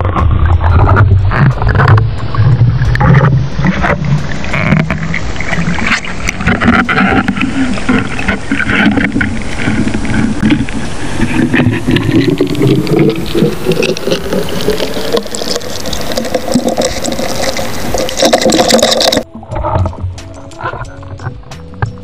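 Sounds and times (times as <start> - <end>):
low hum rising in pitch: 0.0 - 6.2
underwater water rushing: 0.0 - 21.8.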